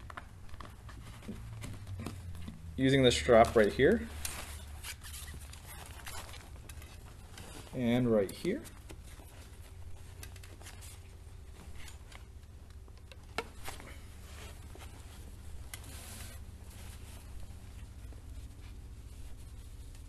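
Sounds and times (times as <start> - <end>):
fabric rustling: 0.0 - 20.0
steady low hum: 0.0 - 20.0.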